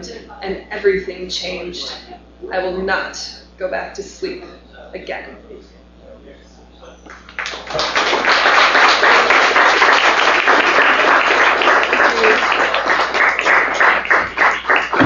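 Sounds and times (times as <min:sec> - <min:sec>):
audience applauding: 0:07.1 - 0:15.0.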